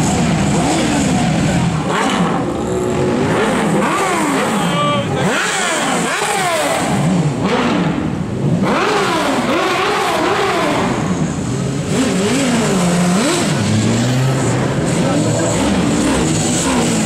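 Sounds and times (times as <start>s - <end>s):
engine revving: 0.0s - 17.0s.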